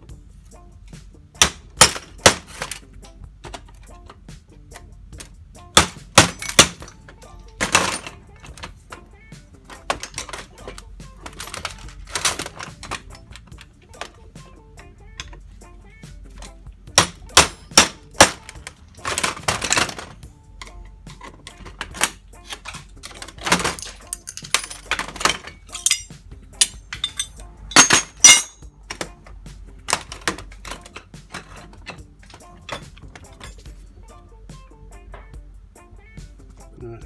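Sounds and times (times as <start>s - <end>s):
loose brass parts rattling: 1.4s - 34.0s
metal knocks on brass handles: 23.0s - 29.2s.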